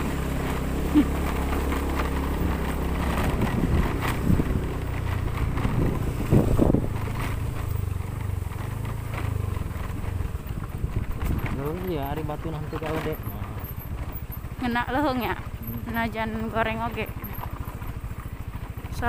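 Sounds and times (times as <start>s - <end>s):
vehicle engine running: 0.0s - 19.0s
wind buffeting microphone: 2.4s - 8.4s, 10.1s - 12.1s.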